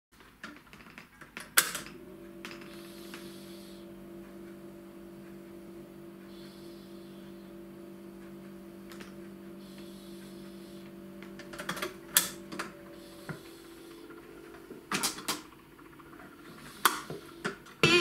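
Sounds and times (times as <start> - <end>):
record changer clicks and clunks: 0.4 - 3.4, 8.1 - 18.0
low steady hum: 1.8 - 18.0.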